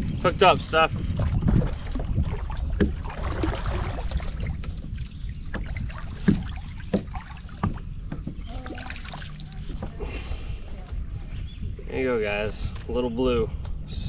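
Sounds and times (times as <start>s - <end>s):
water splashes: 0.0s - 11.0s
wind on microphone: 0.0s - 14.0s.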